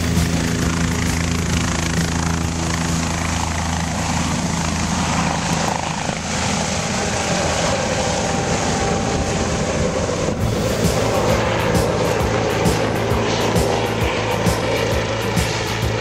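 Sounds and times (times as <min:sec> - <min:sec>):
helicopter lifting off: 0:00.0 - 0:16.0.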